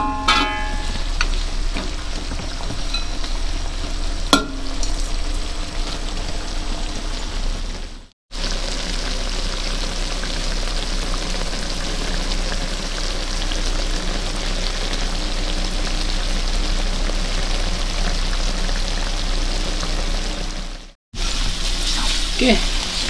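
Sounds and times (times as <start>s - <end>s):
chicken sizzling in oil: 0.0s - 23.0s.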